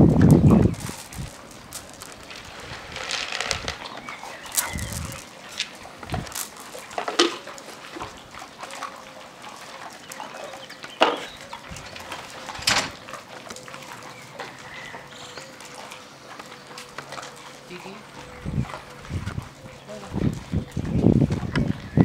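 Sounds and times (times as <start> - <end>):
dogs eating kibble: 0.0 - 22.0
dogs yelping: 3.9 - 19.8.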